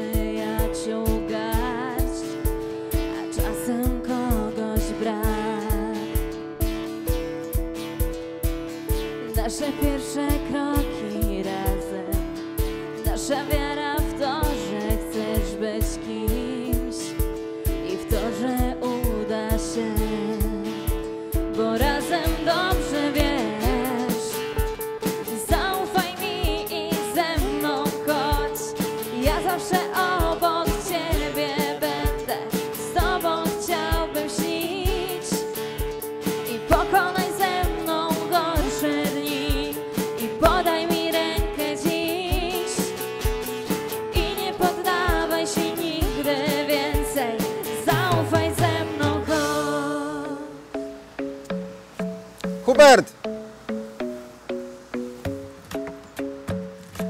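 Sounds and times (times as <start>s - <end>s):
woman singing: 0.0s - 6.4s, 9.2s - 43.1s, 44.0s - 50.7s
electric guitar: 0.0s - 50.4s
keyboard chords: 49.5s - 57.0s.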